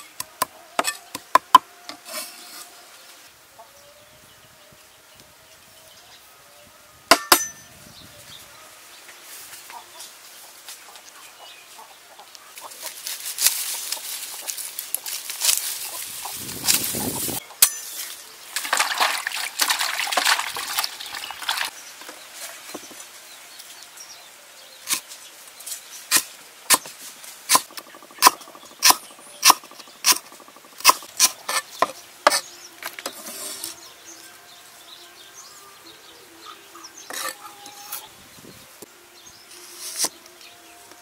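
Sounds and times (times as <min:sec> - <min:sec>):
cleaver chopping on stone: 0:07.1 - 0:07.6.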